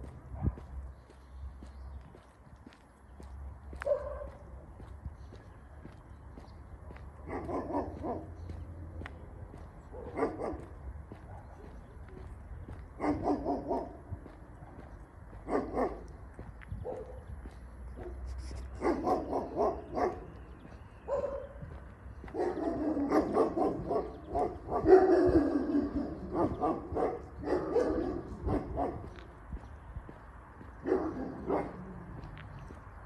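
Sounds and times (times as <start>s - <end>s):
dog barking: 3.8s - 4.4s, 7.2s - 8.4s, 9.9s - 11.7s, 13.0s - 14.0s, 15.4s - 16.1s, 16.8s - 17.3s, 18.0s - 20.3s, 21.1s - 21.7s, 22.3s - 29.2s, 30.8s - 31.9s.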